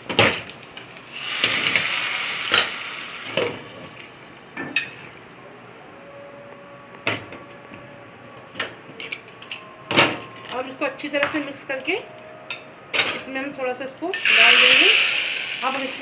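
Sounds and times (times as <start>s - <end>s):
hot oil sizzling in curry: 0.3s - 4.0s, 14.2s - 16.0s.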